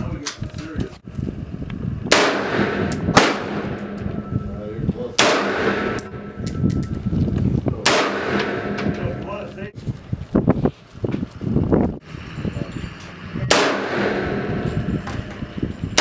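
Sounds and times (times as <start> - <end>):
rifle shots: 2.1 - 4.0, 5.2 - 6.4, 7.8 - 9.1, 13.5 - 14.6.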